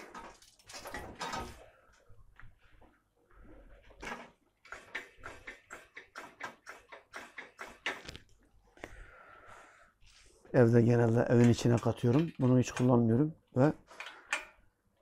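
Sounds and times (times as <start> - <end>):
hand tool clicking on metal: 4.6 - 8.2, 11.3 - 13.0.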